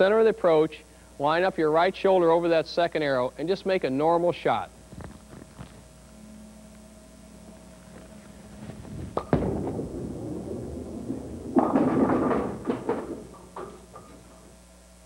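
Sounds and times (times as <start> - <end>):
bowling ball rolling rumble: 7.8 - 14.6
bowling pins clattering: 9.0 - 14.6
bowling ball thud on lane: 9.1 - 14.4.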